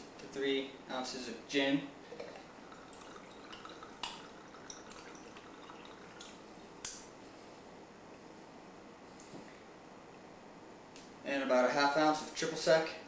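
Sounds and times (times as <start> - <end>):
liquid trickling: 2.0 - 6.6.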